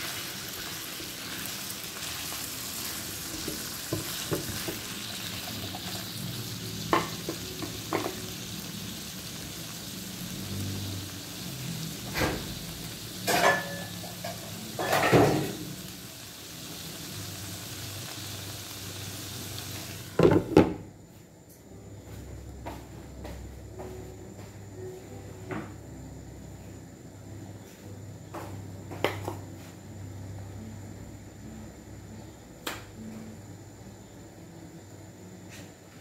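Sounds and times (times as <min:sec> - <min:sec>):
food sizzling in frying pan: 0:00.0 - 0:20.8
glass lid clanking: 0:13.3 - 0:15.6.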